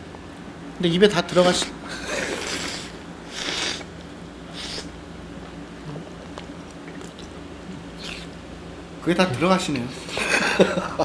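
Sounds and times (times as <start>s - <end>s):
man chewing food: 4.5s - 8.5s.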